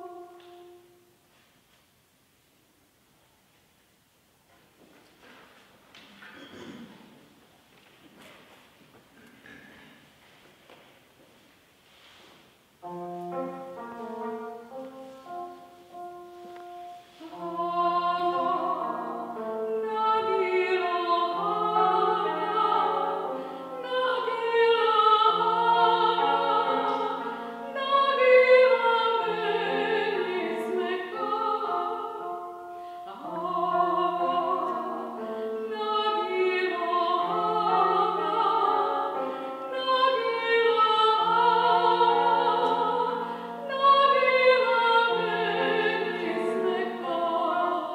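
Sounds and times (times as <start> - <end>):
woman singing classical with vibrato: 0.0 - 1.2, 12.8 - 47.9.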